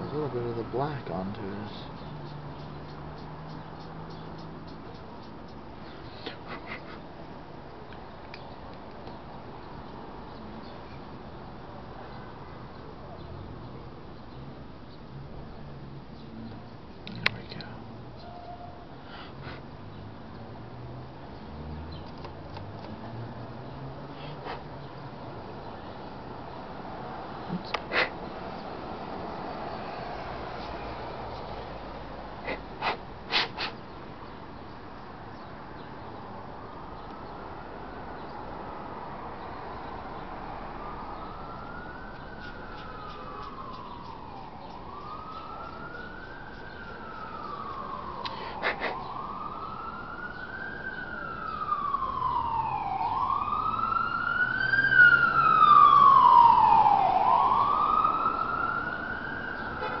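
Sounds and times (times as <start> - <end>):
siren wailing: 40.5 - 60.0
sharp clicks: 42.4 - 44.8.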